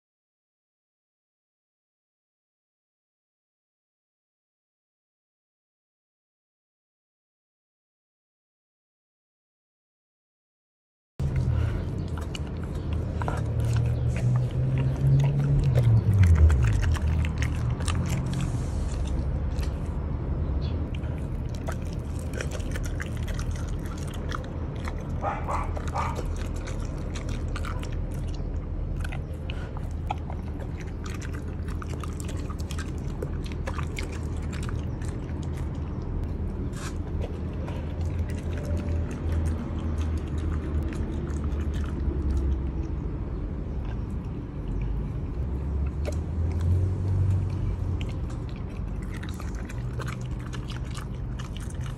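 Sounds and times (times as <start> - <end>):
dog chewing and crunching: 11.2 - 51.9.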